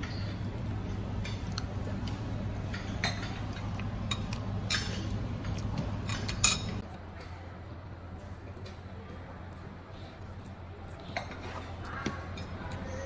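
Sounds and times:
steady low hum: 0.0 - 13.0
cutlery and dishes clinking: 2.6 - 6.8.

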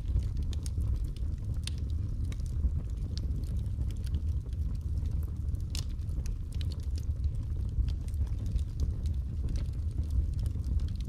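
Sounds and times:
burning wood crackling and popping: 0.0 - 11.0
fire rumbling: 0.0 - 11.0.

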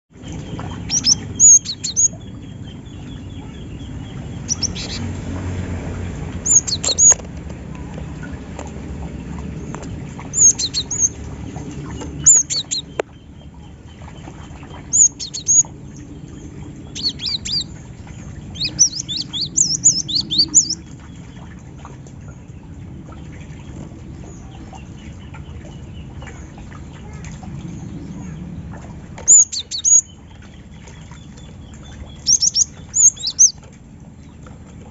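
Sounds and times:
low background rumble: 0.1 - 34.9
bird chirping: 0.2 - 5.2, 6.4 - 7.2, 9.7 - 11.2, 11.8 - 13.7, 14.8 - 17.8, 18.4 - 20.8, 29.3 - 30.2, 31.2 - 33.6.

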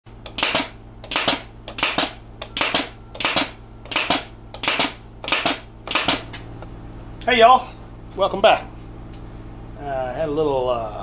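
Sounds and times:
brad nailer firing: 0.2 - 6.4.

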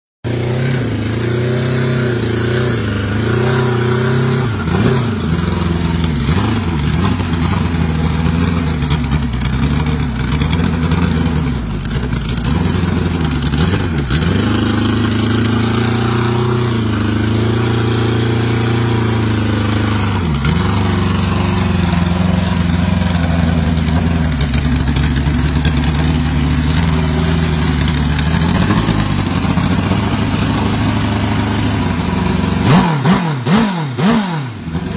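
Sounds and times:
motorcycle engine revving: 0.2 - 34.9.

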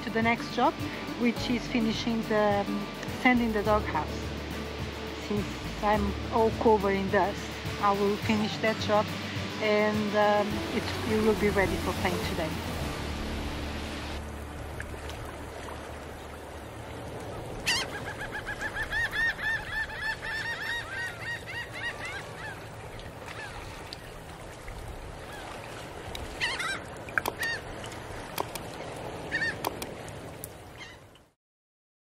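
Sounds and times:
waterfowl honking: 17.6 - 22.7, 26.4 - 27.7, 29.3 - 29.7.

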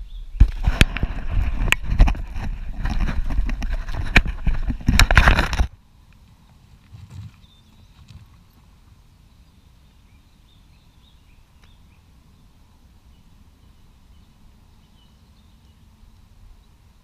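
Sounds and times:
bird chirps: 7.3 - 8.6, 9.2 - 15.9.

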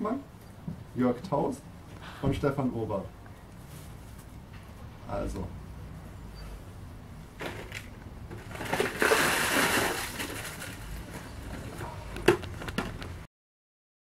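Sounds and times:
ice cubes rattling in plastic tub: 7.4 - 11.8.

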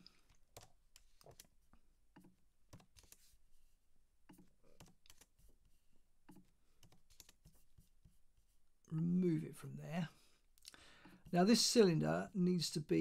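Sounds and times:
keyboard typing: 0.2 - 3.3, 4.3 - 5.5, 6.3 - 7.7.

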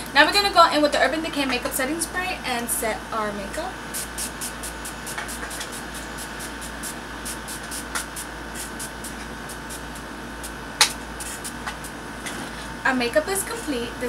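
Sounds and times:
spray bottle spritzing: 3.9 - 11.9.

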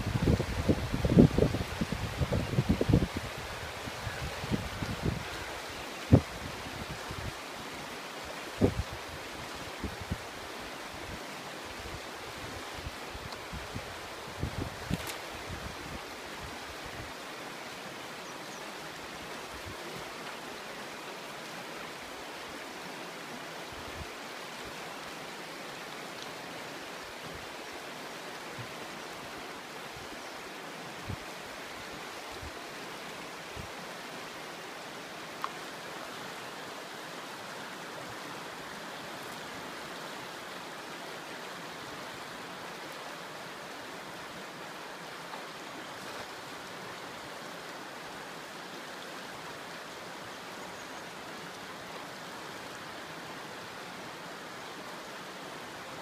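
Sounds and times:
river water rushing: 0.0 - 56.0.

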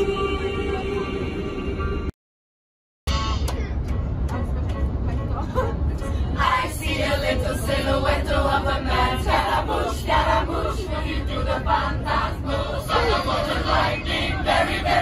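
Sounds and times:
bus rumbling on road: 0.0 - 2.1, 3.1 - 15.0
girls singing in unison: 6.4 - 15.0.

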